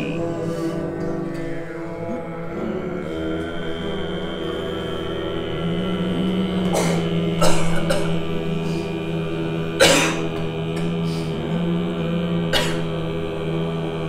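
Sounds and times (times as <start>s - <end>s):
throat-singing drone: 0.0s - 14.0s
people coughing: 6.6s - 8.4s, 9.7s - 11.1s, 12.5s - 13.0s.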